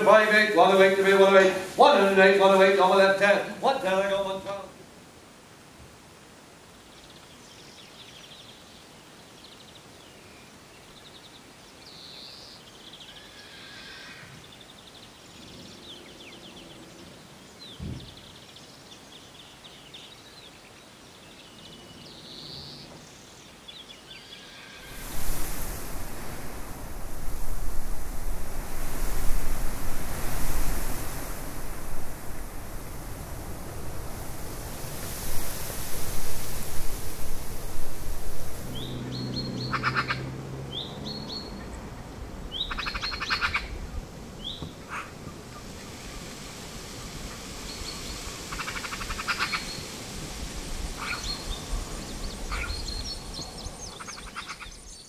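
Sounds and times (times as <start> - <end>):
low thump: 17.8 - 18.1
wind buffeting microphone: 24.8 - 54.0.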